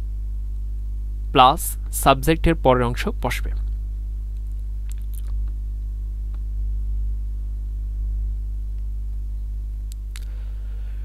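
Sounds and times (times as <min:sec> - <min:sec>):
low electrical hum: 0:00.0 - 0:11.0
faint click: 0:09.9 - 0:10.4.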